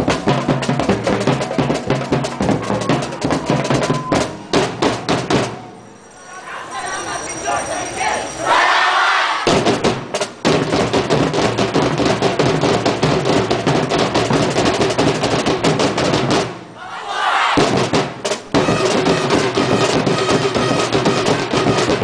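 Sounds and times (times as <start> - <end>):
drum ensemble playing fast beat: 0.0 - 5.8, 9.4 - 16.8, 17.6 - 22.0
crowd noise: 0.0 - 10.7, 16.0 - 22.0.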